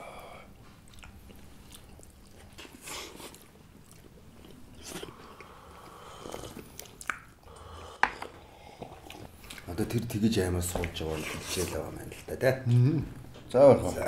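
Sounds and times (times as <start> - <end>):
chewing: 0.6 - 10.0.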